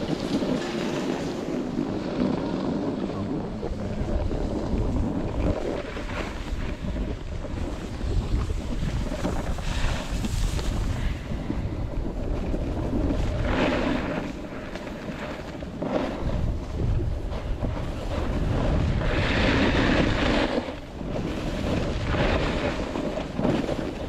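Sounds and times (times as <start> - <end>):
skis scraping over snow: 0.0 - 24.0
wind rushing over microphone: 0.0 - 24.0.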